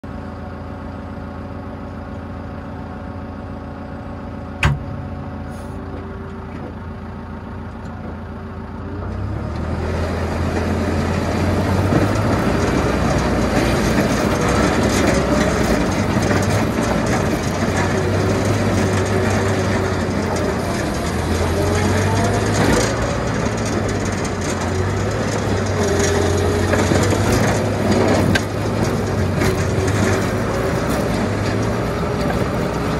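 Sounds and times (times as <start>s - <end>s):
tractor engine idling: 0.1s - 32.9s
plow scraping snow and ice: 9.1s - 32.9s.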